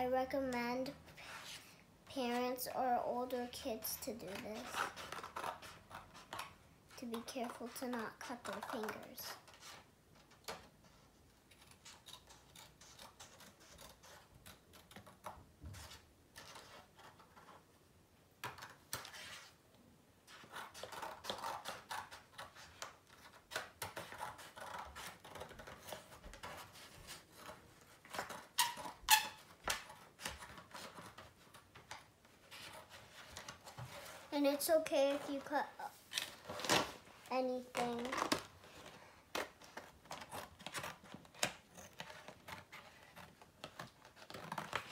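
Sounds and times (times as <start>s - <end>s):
scissors cutting paper: 4.0s - 10.7s, 11.4s - 17.6s, 20.3s - 34.0s, 37.7s - 44.9s.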